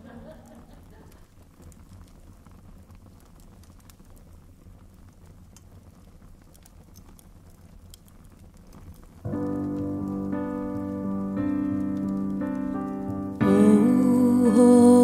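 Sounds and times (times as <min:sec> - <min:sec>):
wood fire crackling: 0:00.0 - 0:15.0
low steady hum: 0:09.2 - 0:15.0.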